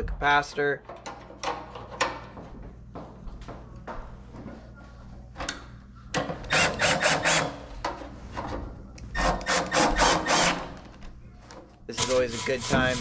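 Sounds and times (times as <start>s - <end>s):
cordless drill driving screw: 6.5s - 7.5s, 9.2s - 10.6s.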